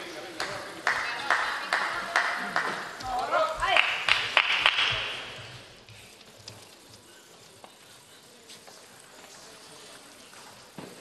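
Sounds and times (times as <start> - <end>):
clapping in echoing hall: 0.0 - 5.4.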